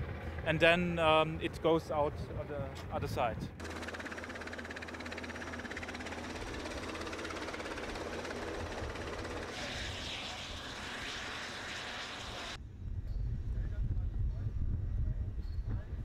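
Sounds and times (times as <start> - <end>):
aircraft engines droning: 0.0 - 12.6.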